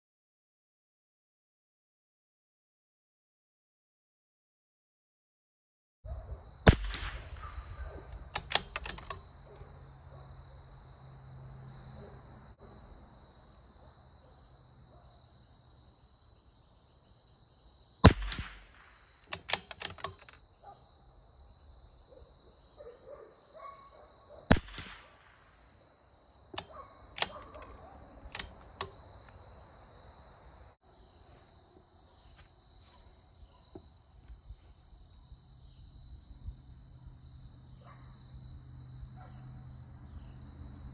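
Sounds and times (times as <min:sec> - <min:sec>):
rifle shots: 0:06.6 - 0:09.2, 0:18.0 - 0:20.3, 0:24.5 - 0:25.6
metallic clicks of rifle bolt: 0:06.7 - 0:09.4, 0:18.1 - 0:20.4, 0:24.6 - 0:25.2, 0:26.5 - 0:29.4.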